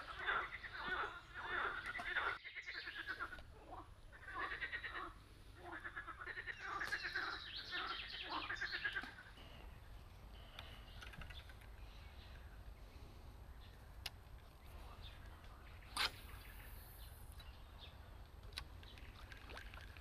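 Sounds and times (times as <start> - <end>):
frogs croaking: 0.0 - 12.8.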